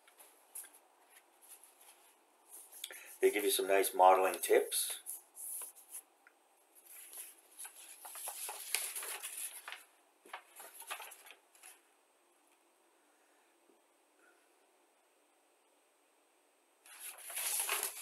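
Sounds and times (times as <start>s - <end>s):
paper leaflet rustling: 6.8s - 11.8s, 16.9s - 18.0s.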